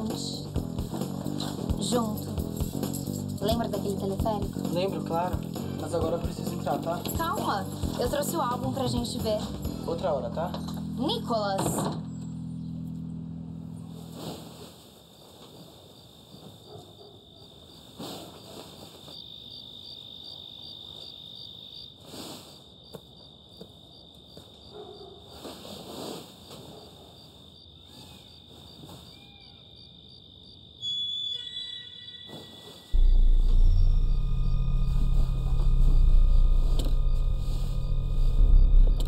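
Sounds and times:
crickets chirping: 12.1 - 39.0
bedding rustling: 13.8 - 16.7
shrill tone: 30.8 - 38.9.

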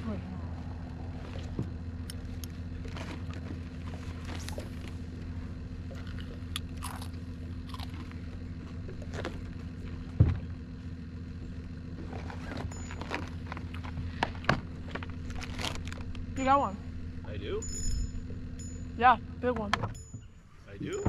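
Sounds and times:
steady low hum: 0.0 - 21.0
crunchy snack eating: 5.9 - 8.2
dull thump: 10.1 - 10.6.

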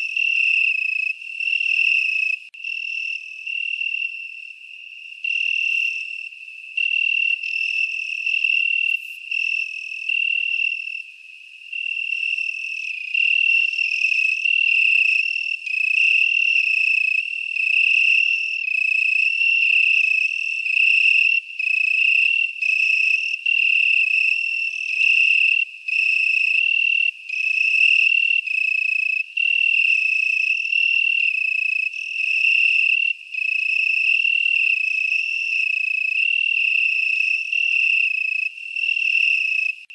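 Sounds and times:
insect trill: 0.0 - 39.9.

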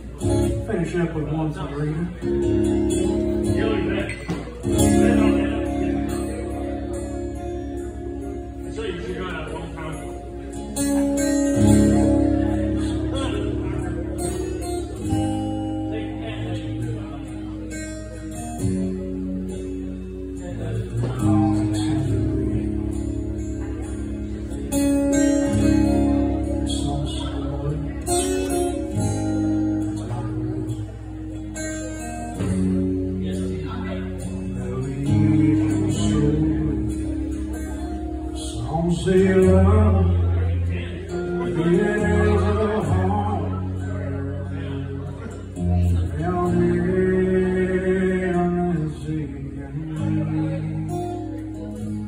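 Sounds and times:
acoustic guitar strumming: 0.0 - 52.0
man singing: 20.6 - 23.9, 25.4 - 31.2, 32.5 - 52.0.

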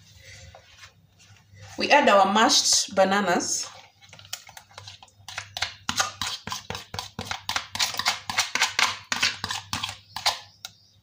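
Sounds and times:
spoon scraping glass bowl: 3.6 - 10.6.

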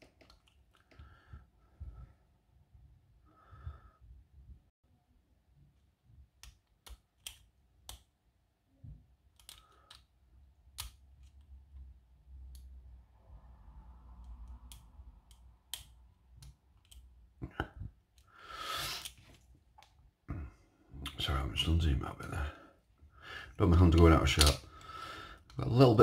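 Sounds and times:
small metallic lock pick clicks: 9.3 - 10.1.

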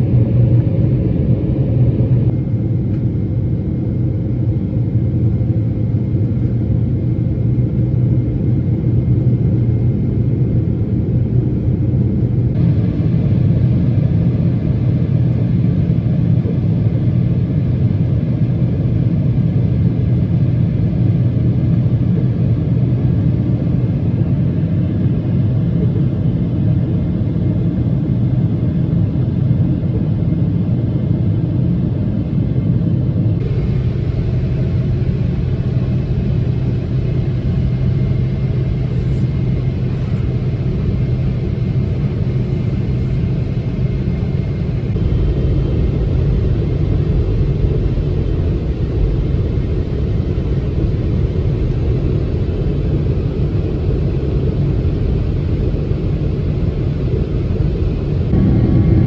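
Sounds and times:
airplane cabin drone: 0.0 - 59.0.

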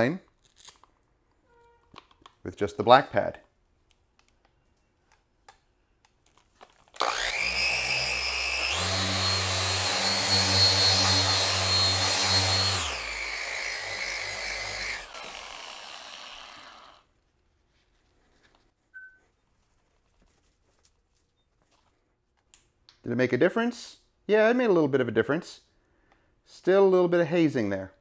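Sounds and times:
car polisher whining: 7.0 - 17.0.

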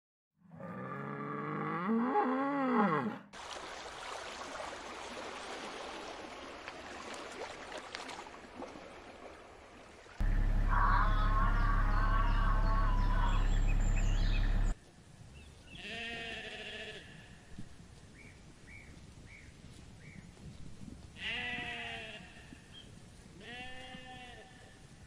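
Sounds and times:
loud low hum: 10.2 - 14.8
sheep bleating: 10.3 - 13.6, 15.8 - 17.3, 21.2 - 22.5, 23.4 - 24.6.

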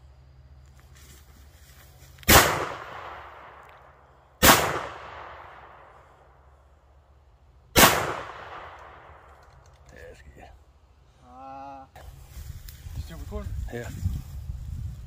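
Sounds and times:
shotgun blasts with echo: 2.3 - 3.7, 4.4 - 6.0, 7.7 - 9.4.

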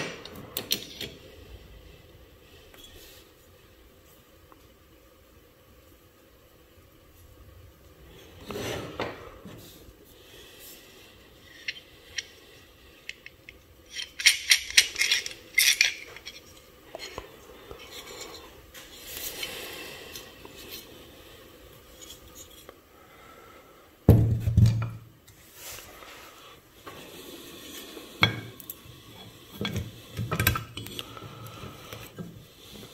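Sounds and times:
scraping: 11.3 - 21.0
metal parts clinking: 11.5 - 12.3, 13.0 - 17.2.

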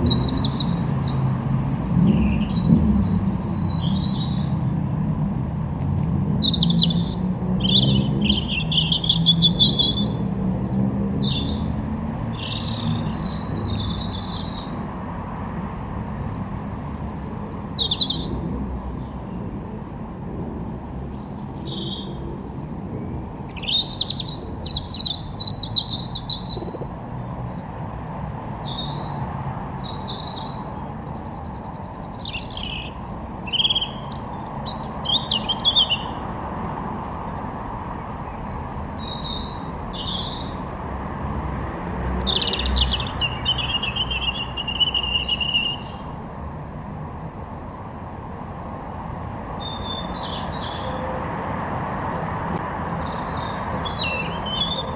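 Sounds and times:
songbirds chirping and whistling: 0.0 - 4.6, 5.6 - 14.8, 16.0 - 18.4, 20.8 - 40.8, 41.6 - 46.2, 49.4 - 54.9
bird trill: 16.1 - 18.3, 23.5 - 27.0, 29.8 - 36.6, 41.8 - 46.0.

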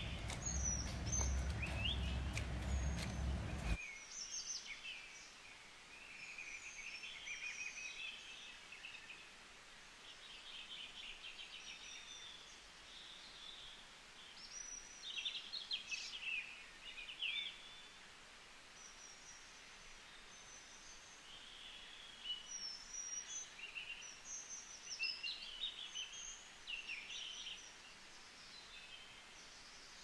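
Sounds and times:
low rumble: 0.0 - 3.8
small birds chirping: 0.0 - 4.3.

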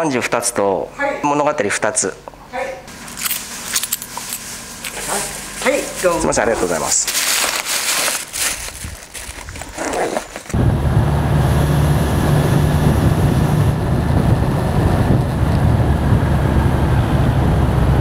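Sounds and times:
wind noise: 8.4 - 18.0
motorcycle engine drone: 10.5 - 18.0.

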